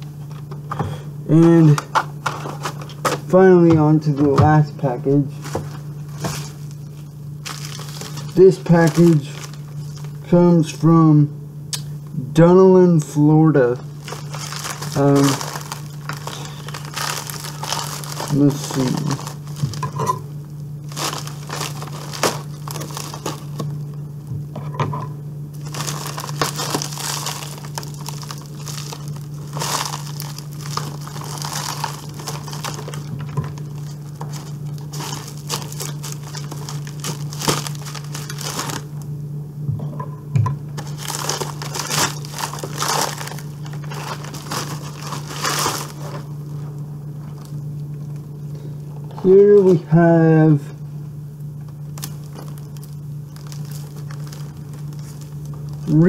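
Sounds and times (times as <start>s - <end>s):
plastic packaging crinkling: 0.0s - 10.8s, 13.0s - 24.3s, 25.5s - 39.1s, 40.8s - 48.5s, 51.6s - 56.0s
scissors cutting plastic: 21.0s - 23.7s.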